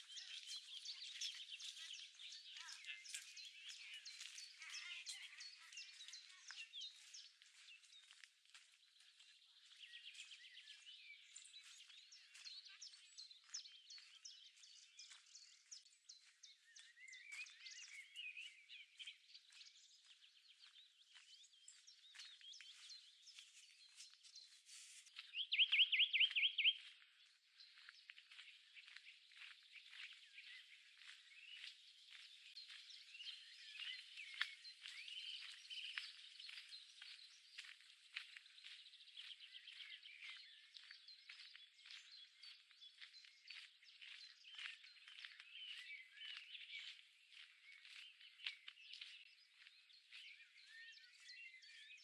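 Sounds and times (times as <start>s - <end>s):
songbirds singing and chirping: 0.0s - 52.0s
bird singing fast trill: 25.4s - 26.9s.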